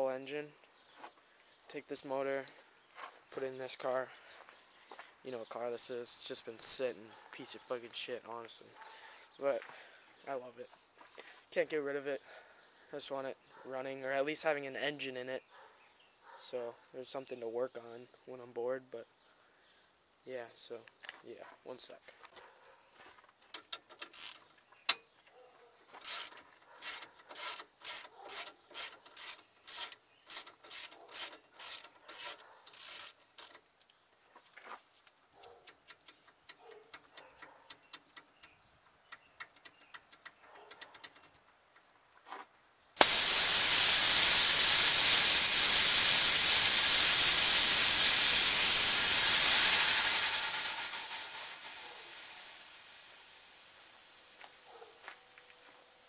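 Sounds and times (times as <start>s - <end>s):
ratchet wrench clicking: 23.6s - 24.4s, 26.0s - 33.6s, 43.0s - 53.8s
pressurised gas hissing out: 43.0s - 54.7s.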